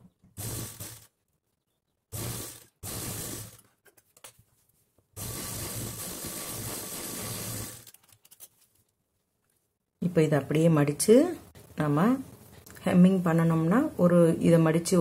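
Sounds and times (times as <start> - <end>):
sewing machine stitching: 0.4 - 1.2, 2.1 - 3.7, 5.2 - 7.9.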